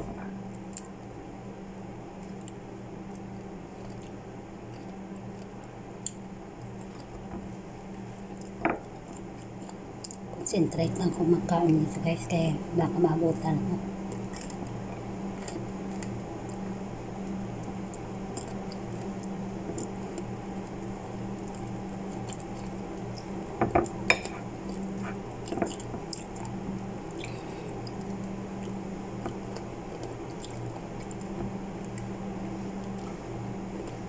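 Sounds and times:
steady low hum: 0.0s - 34.0s
soft clicks of fruit peeling: 24.7s - 32.1s.

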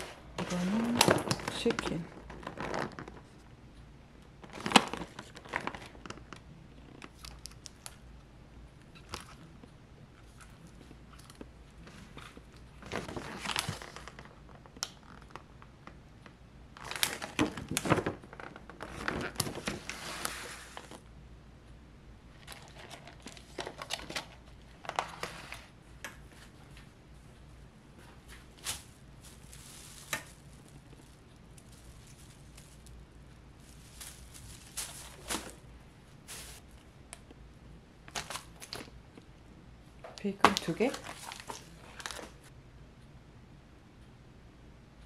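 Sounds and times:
plastic packaging crinkling and clacking: 0.0s - 3.4s, 4.4s - 8.0s, 10.2s - 21.0s, 22.4s - 25.4s, 28.3s - 33.0s, 33.6s - 35.6s, 38.1s - 38.9s, 40.2s - 42.4s.

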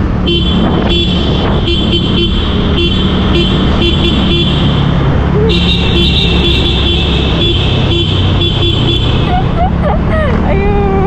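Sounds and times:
motorbike engine and road noise: 0.0s - 11.0s.

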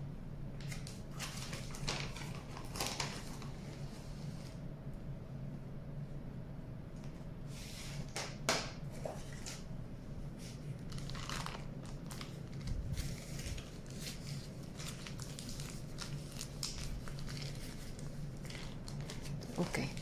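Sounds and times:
plastic bag crinkling: 0.7s - 3.5s, 10.8s - 20.0s.

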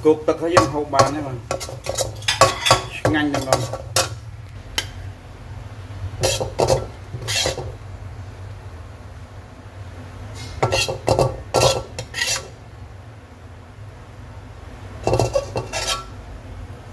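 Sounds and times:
metal spatula scraping wok: 0.2s - 4.2s, 6.2s - 7.8s, 10.3s - 12.6s, 15.0s - 16.2s.

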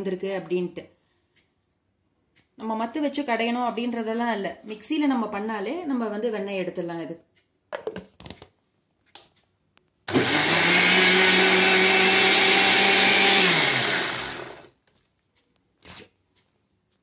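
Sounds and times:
mixer grinder running: 10.1s - 14.7s.

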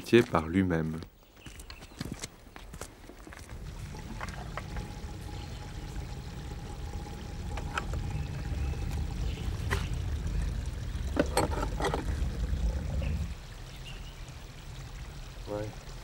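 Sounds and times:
fuel pouring into tank: 3.5s - 16.0s.

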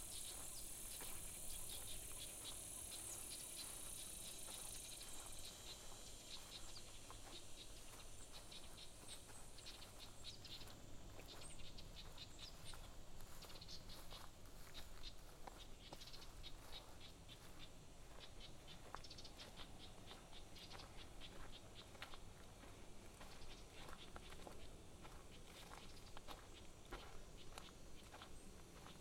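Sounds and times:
high insect buzz: 0.0s - 9.1s.

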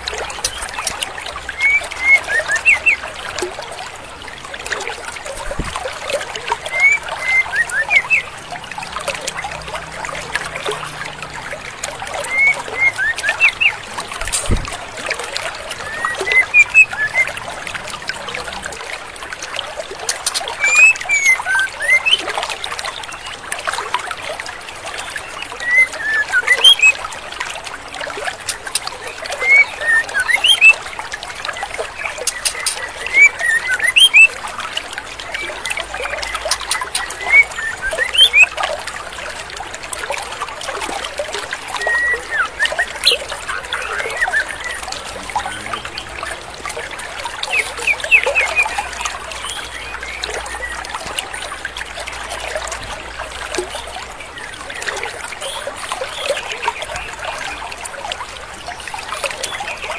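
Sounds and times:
stream rushing: 0.0s - 59.9s
bird whistling notes: 6.7s - 8.3s, 12.2s - 13.8s, 15.8s - 17.3s, 20.3s - 22.2s, 25.6s - 27.0s, 29.4s - 30.8s, 32.2s - 34.3s, 36.5s - 38.5s, 47.4s - 48.8s.

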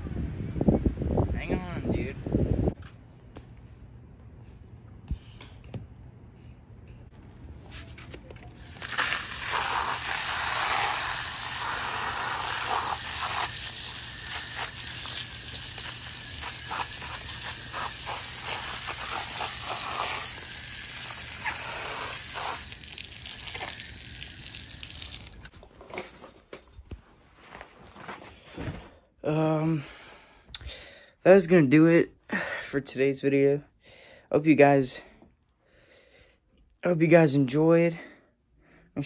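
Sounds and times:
hose spraying water on concrete: 8.6s - 25.5s.

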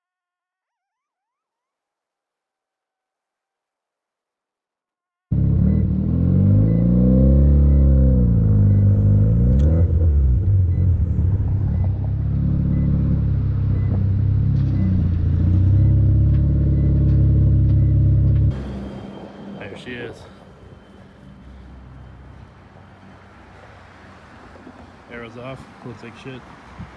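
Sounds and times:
rotary car engine revving and idling: 5.3s - 19.2s.

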